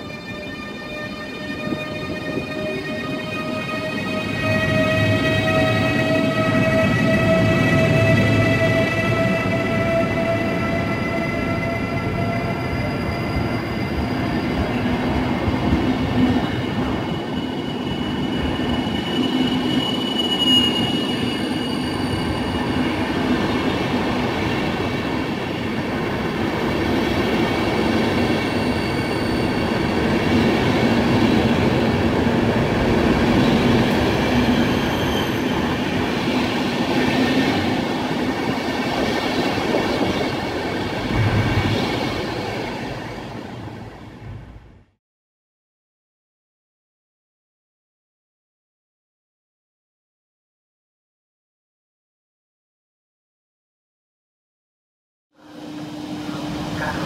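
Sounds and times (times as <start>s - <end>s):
high squealing tones: 9.7s - 14.7s, 16.6s - 23.1s, 28.5s - 30.0s.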